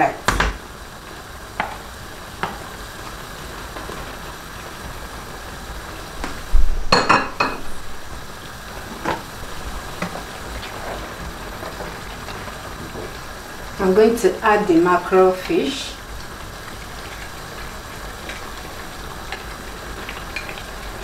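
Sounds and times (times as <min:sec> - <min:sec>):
steady low hiss: 0:00.0 - 0:21.0
kitchen utensils clinking: 0:06.9 - 0:07.8.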